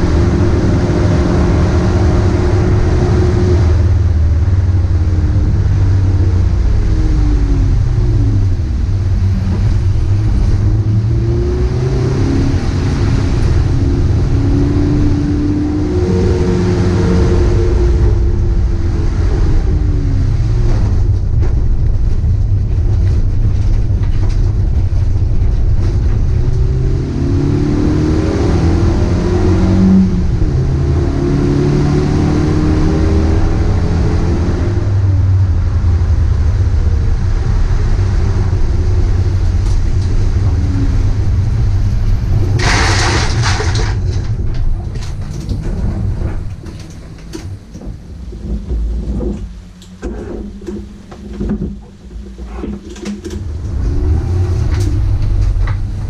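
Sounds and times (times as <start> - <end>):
race car engine revving: 0.0 - 56.0
tyres hissing on wet track: 41.9 - 44.0.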